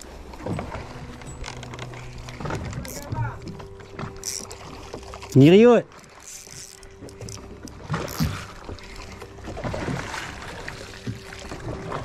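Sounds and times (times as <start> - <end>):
water around boat: 0.0 - 12.0
wind: 0.0 - 12.0.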